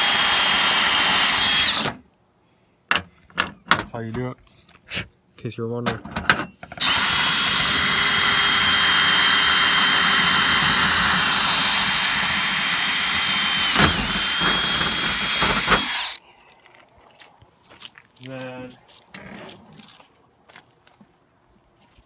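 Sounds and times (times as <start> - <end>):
cordless drill boring metal: 0.0 - 2.0, 6.7 - 16.2.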